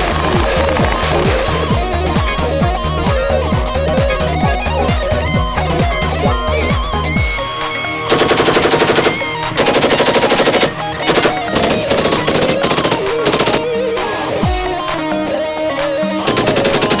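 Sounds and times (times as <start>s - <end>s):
guitar music: 0.0s - 17.0s
automatic rifle bursts: 8.1s - 13.7s, 16.3s - 17.0s.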